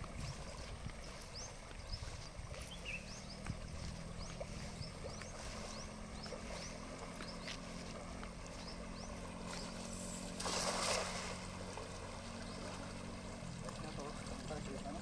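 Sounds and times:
river water running: 0:00.0 - 0:15.0
cast net splashing on water: 0:09.3 - 0:13.8.

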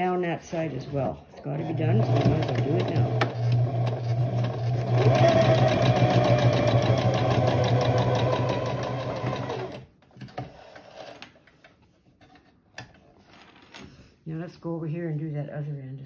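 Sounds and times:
sewing machine stitching: 0:00.8 - 0:09.9.

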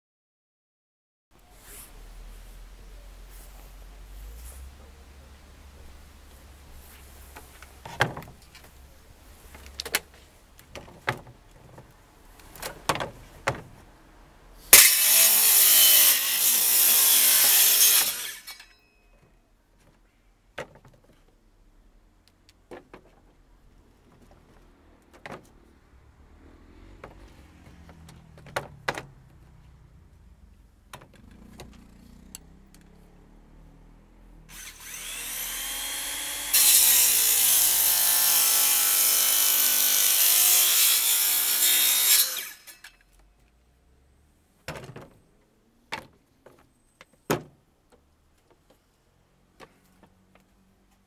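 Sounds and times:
wooden boards knocking: 0:07.8 - 0:08.6, 0:27.0 - 0:29.1
circular saw cutting wood: 0:14.7 - 0:18.8, 0:34.4 - 0:43.0.

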